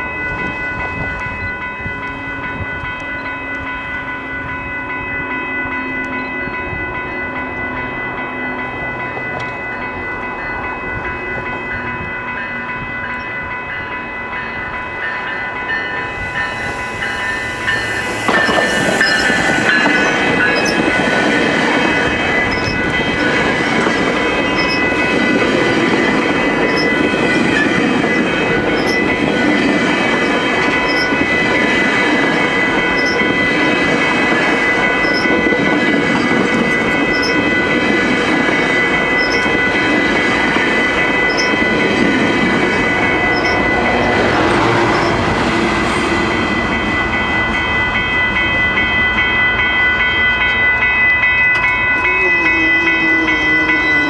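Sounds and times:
train wheels rumbling on rails: 0.0s - 54.0s
high wheel squeal: 16.1s - 20.9s.

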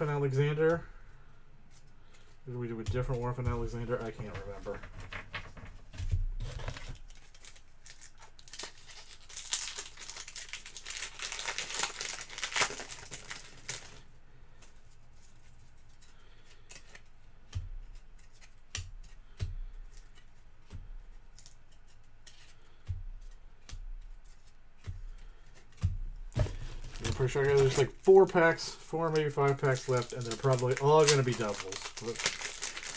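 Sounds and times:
foil wrapper tearing and crinkling: 6.4s - 14.0s, 26.6s - 32.9s
cards clicking and knocking: 15.9s - 28.4s.

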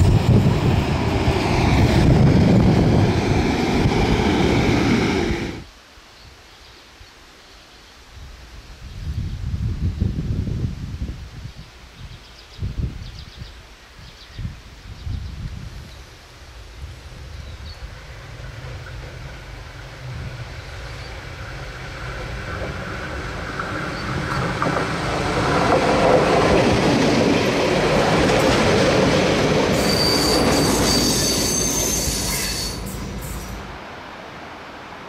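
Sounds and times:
diesel railcar rumble: 0.0s - 5.7s, 16.8s - 35.0s
high-pitched wheel squeal: 29.8s - 33.6s.

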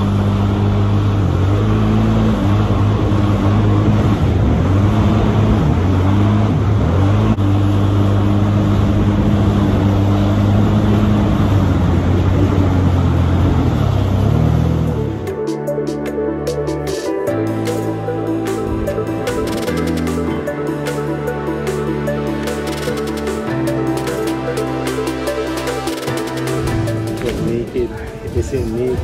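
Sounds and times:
jet ski engine running: 0.0s - 29.0s
music: 14.4s - 29.0s.

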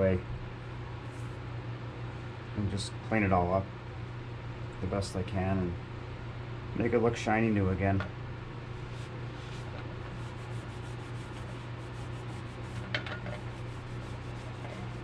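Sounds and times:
steady low hum: 0.0s - 15.0s
cloth rubbing plastic: 8.8s - 15.0s.

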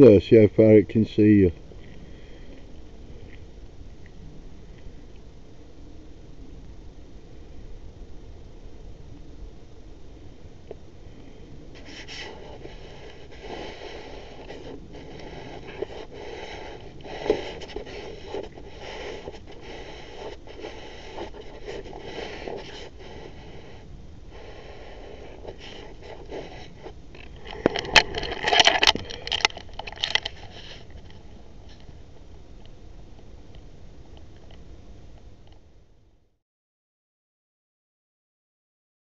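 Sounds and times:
scraping and rustling: 11.8s - 23.8s, 24.4s - 31.9s.

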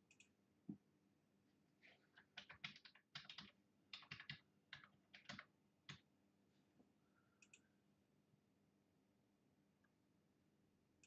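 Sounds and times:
typing on computer keyboard: 2.2s - 6.0s.

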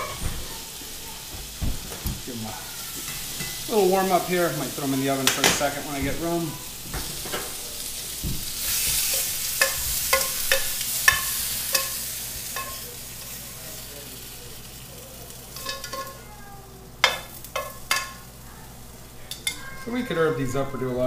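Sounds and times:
food sizzling in oil: 0.0s - 21.0s
metal tongs clinking and scraping: 8.7s - 12.9s, 15.5s - 16.2s, 17.0s - 18.2s, 19.3s - 19.8s.

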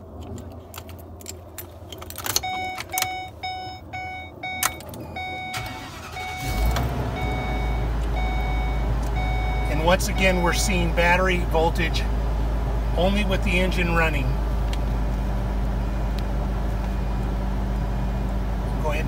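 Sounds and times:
dashboard warning chime: 2.4s - 11.2s
engine starting and idling: 4.6s - 9.6s.

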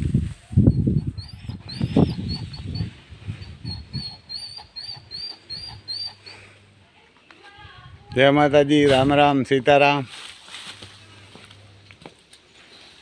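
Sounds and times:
small bird chirping: 0.6s - 6.3s.

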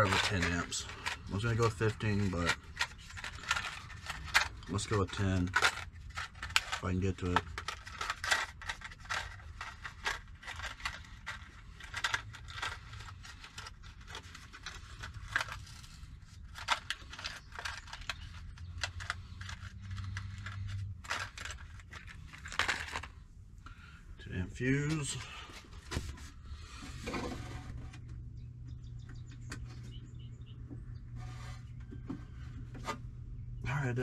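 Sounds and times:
plastic packaging crinkling: 0.0s - 23.2s.

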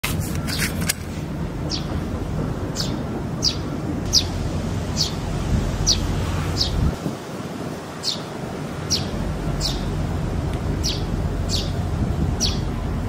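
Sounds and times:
bird calling: 10.8s - 11.8s.

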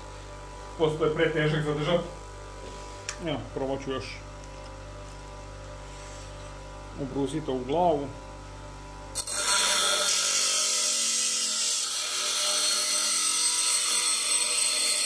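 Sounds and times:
faint grinder motor hum: 0.0s - 15.0s
grinding wheel on steel nail: 9.1s - 15.0s.

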